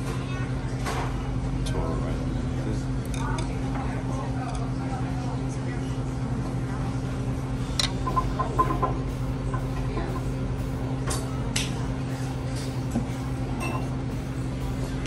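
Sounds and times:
steady low hum: 0.0 - 15.0
utensils clinking against dishes: 3.0 - 3.6, 4.4 - 4.8, 7.7 - 10.3, 13.5 - 14.0.

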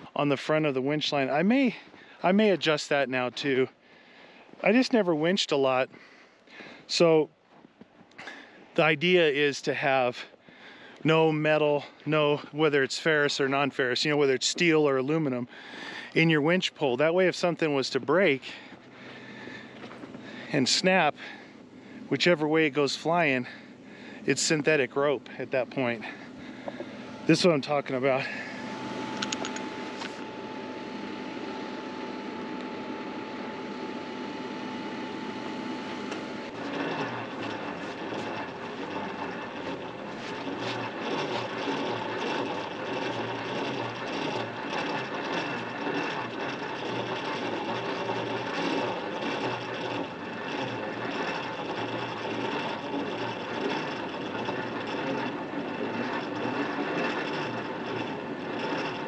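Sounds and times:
winch whirring with rattle: 0.0 - 59.0
thin steady hum: 13.8 - 59.0.

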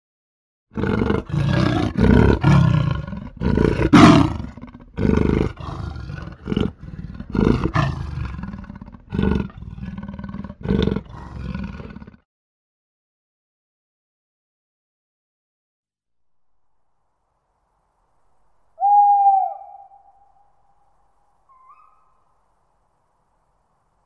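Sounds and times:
leopard roaring: 0.7 - 12.2.

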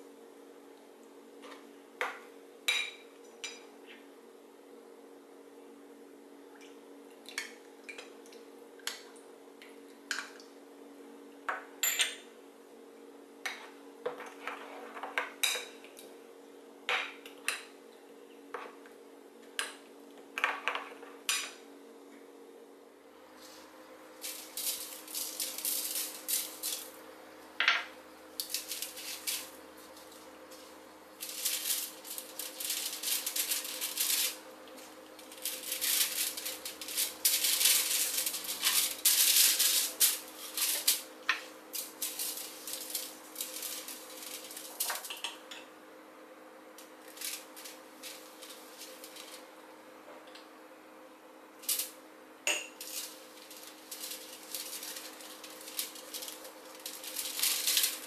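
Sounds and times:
faint steady hum: 0.0 - 58.0
aluminium foil crinkling: 24.2 - 27.0, 28.4 - 45.2, 47.0 - 49.4, 52.8 - 58.0.

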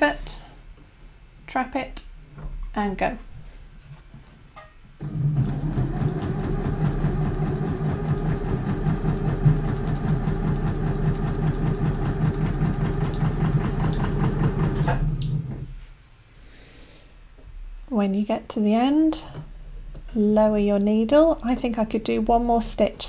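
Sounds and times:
sewing machine stitching: 5.0 - 15.6.

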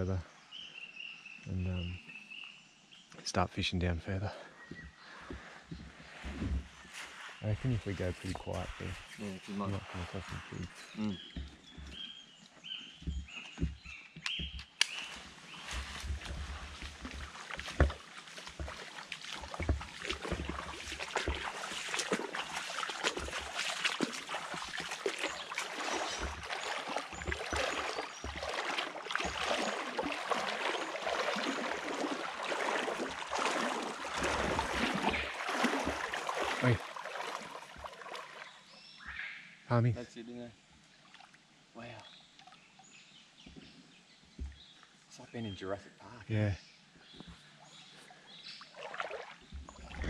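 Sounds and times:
water splashing around legs: 4.8 - 38.7, 48.6 - 50.0.

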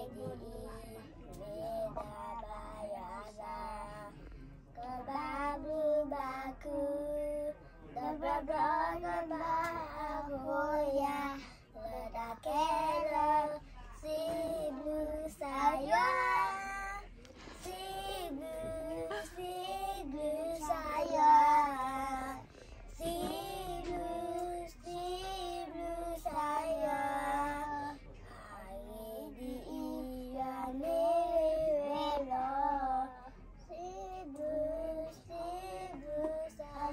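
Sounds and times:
girl singing: 23.0 - 27.9.

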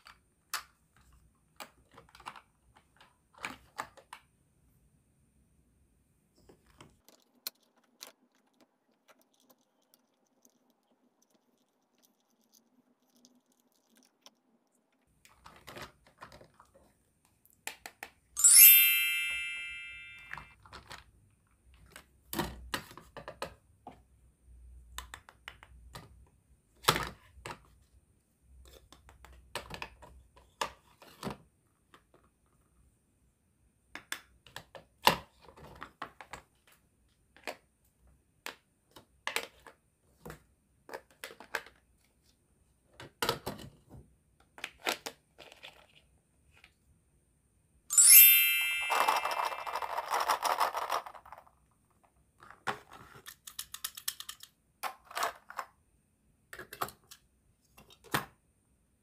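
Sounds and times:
toy food clicks and knocks: 7.0 - 14.6, 48.9 - 51.6, 53.1 - 55.7
bright bell-like ding: 18.4 - 20.5, 47.9 - 49.7.

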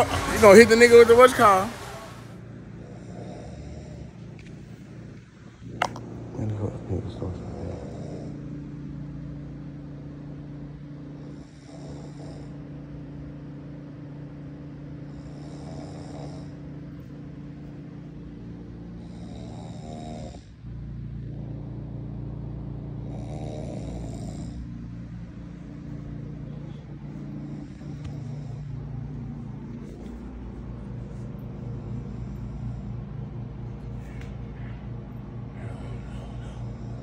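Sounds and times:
steady low hum: 0.0 - 37.0
person snoring: 2.8 - 4.2, 7.4 - 8.4, 11.2 - 12.6, 15.0 - 16.6, 19.0 - 20.6, 23.0 - 24.7, 35.5 - 37.0.

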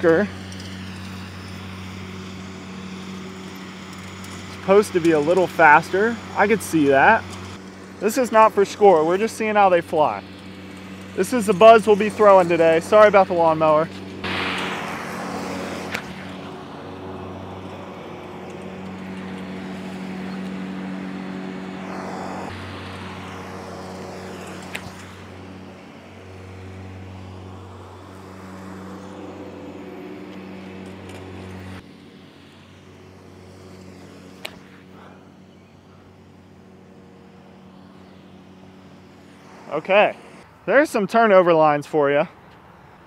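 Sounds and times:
lawnmower engine humming: 0.0 - 43.0
rush of noise: 13.8 - 20.1, 37.9 - 40.8.

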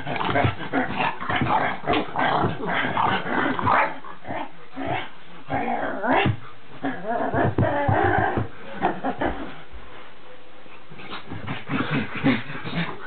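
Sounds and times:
puppy growling and yapping: 0.0 - 9.3.

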